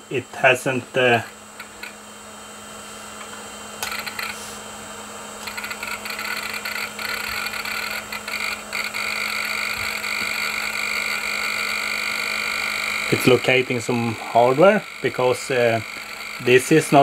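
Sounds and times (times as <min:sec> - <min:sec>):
computer hum and whine: 0:00.0 - 0:17.0
hard drive seek clicks: 0:01.2 - 0:02.0, 0:03.2 - 0:04.5, 0:05.4 - 0:17.0.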